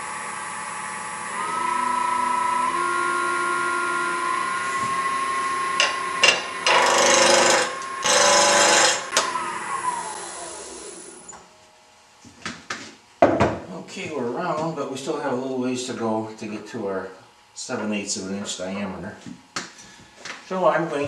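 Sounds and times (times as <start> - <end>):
wood lathe motor whine: 0.0 - 11.5
gouge cutting spinning wood: 1.3 - 11.1.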